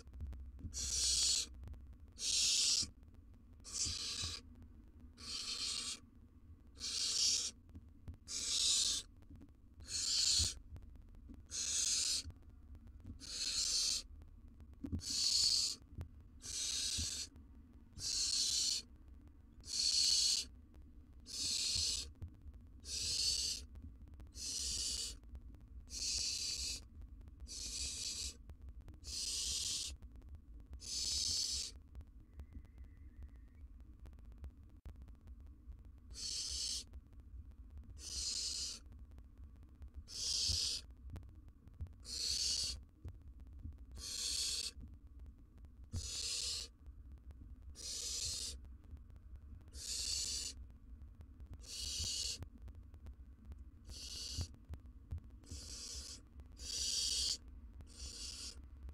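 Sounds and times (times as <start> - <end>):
owl chicks hissing: 0.7 - 1.5, 2.2 - 2.9, 3.7 - 4.4, 5.2 - 6.0, 6.8 - 7.6, 8.3 - 9.1, 9.8 - 10.6, 11.5 - 12.3, 13.2 - 14.1, 15.0 - 15.8, 16.4 - 17.3, 18.0 - 18.9, 19.6 - 20.5, 21.3 - 22.1, 22.8 - 23.7, 24.4 - 25.2, 25.9 - 26.9, 27.5 - 28.4, 29.0 - 30.0, 30.8 - 31.8, 36.1 - 36.9, 38.0 - 38.8, 40.1 - 40.9, 42.0 - 42.8, 44.0 - 44.8, 45.9 - 46.7, 47.8 - 48.6, 49.7 - 50.6, 51.6 - 52.4, 53.8 - 54.6, 55.4 - 58.6.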